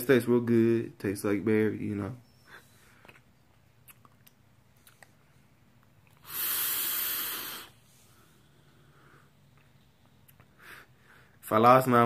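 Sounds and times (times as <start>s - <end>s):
air hissing through vape: 6.2s - 8.2s.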